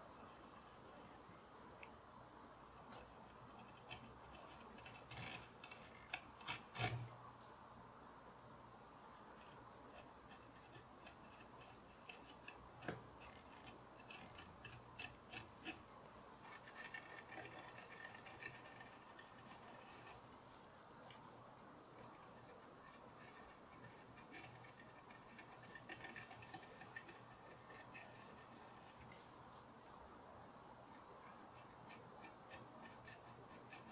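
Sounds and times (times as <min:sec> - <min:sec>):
gouge scraping wood: 0:02.9 - 0:07.1, 0:09.5 - 0:15.8, 0:16.5 - 0:20.2.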